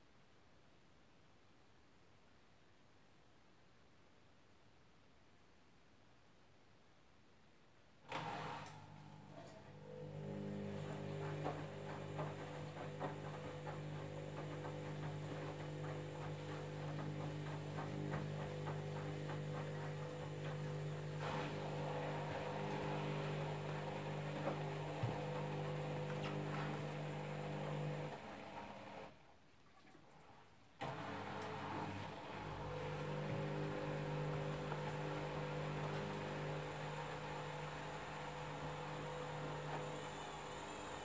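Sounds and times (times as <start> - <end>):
washing machine motor hum: 8.1 - 29.2, 30.2 - 41.0.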